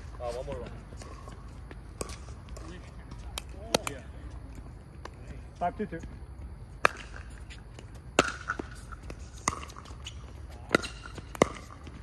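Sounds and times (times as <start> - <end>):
paddles striking pickleball: 0.3 - 4.0, 6.8 - 12.0.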